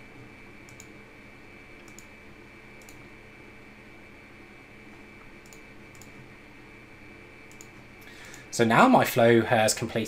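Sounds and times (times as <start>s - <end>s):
electrical hum and hiss: 0.0s - 10.0s
computer mouse clicks: 0.6s - 1.0s, 1.8s - 2.1s, 2.8s - 3.0s, 5.4s - 6.2s, 7.4s - 8.5s.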